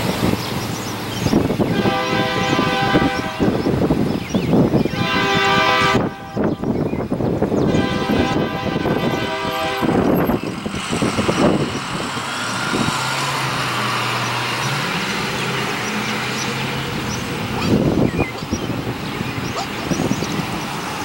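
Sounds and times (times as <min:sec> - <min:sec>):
diesel engine running low: 0:00.0 - 0:21.0
locomotive air horn blast: 0:01.6 - 0:03.9, 0:04.9 - 0:06.7, 0:07.5 - 0:11.7
car driving past: 0:10.1 - 0:18.0.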